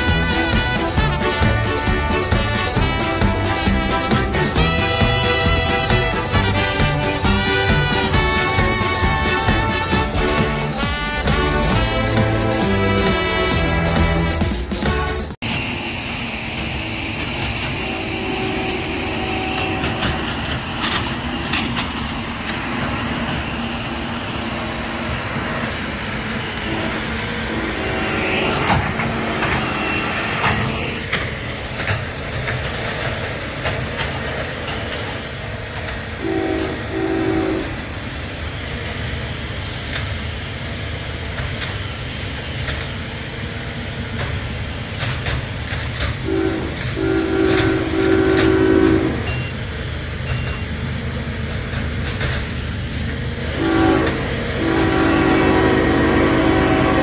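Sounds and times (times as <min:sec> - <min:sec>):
locomotive horn blasts: 0:00.0 - 0:15.4, 0:17.6 - 0:21.0, 0:26.4 - 0:31.2, 0:36.2 - 0:38.0, 0:46.0 - 0:49.5, 0:53.4 - 0:57.0
freight train rumbling past: 0:00.0 - 0:57.0.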